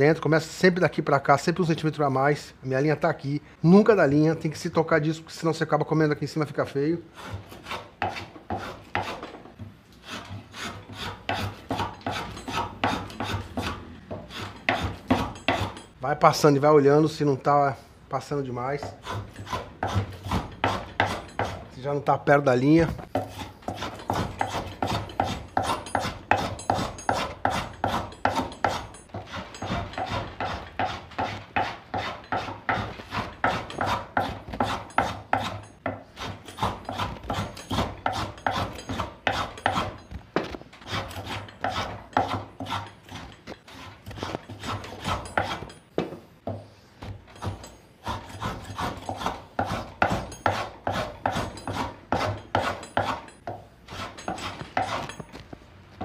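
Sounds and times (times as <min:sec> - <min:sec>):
hand plane scraping wood: 0:07.1 - 0:09.4, 0:10.0 - 0:15.9, 0:18.6 - 0:21.7, 0:22.8 - 0:45.8, 0:46.5 - 0:55.4.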